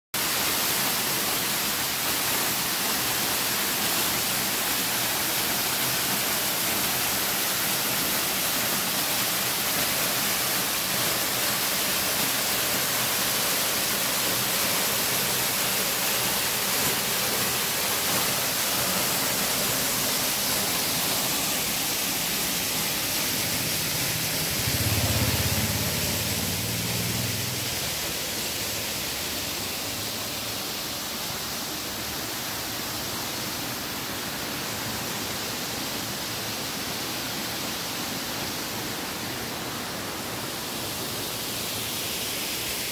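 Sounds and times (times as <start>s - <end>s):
waterfall rushing: 0.2s - 42.9s
low rumble: 23.7s - 28.0s.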